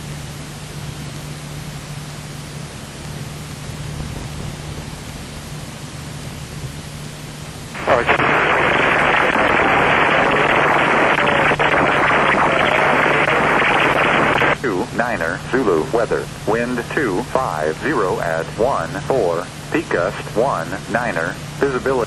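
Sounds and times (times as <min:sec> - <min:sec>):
aircraft engine drone: 0:00.0 - 0:22.0
cabin noise hiss: 0:02.9 - 0:22.0
hissy aircraft radio broadcast: 0:07.8 - 0:22.0.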